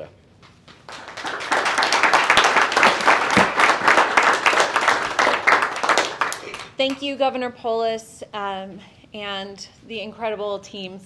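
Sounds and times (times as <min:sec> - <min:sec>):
people clapping: 0:00.4 - 0:07.1.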